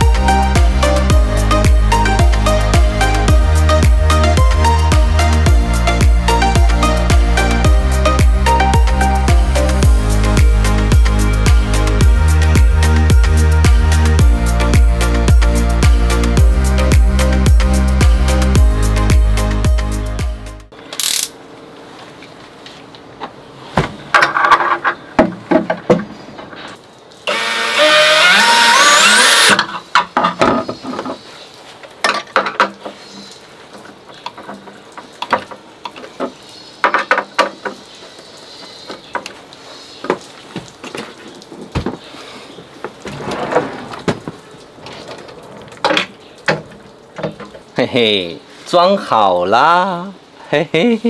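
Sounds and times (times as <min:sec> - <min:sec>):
cordless drill whining: 0:27.3 - 0:29.6.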